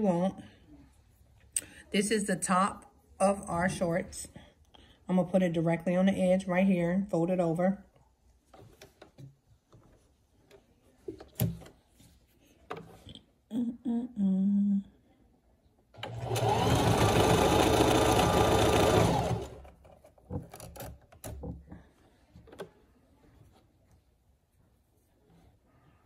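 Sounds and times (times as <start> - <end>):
sewing machine stitching: 16.0 - 21.4.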